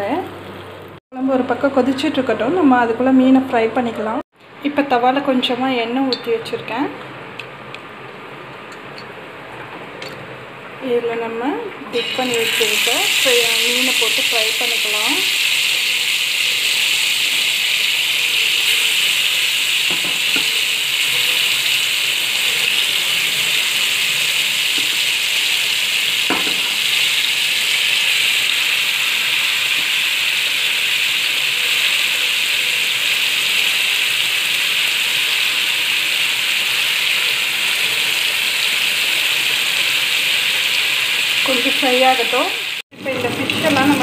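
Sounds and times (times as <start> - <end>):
fish sizzling in a pan: 12.0 - 44.0.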